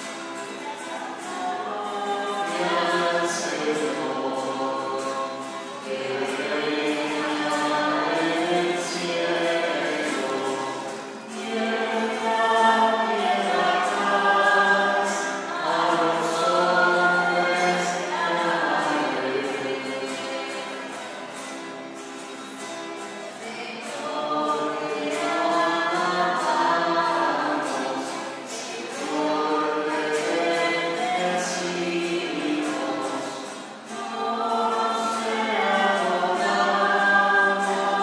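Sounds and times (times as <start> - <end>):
choir singing: 0.0 - 21.6, 23.0 - 38.0.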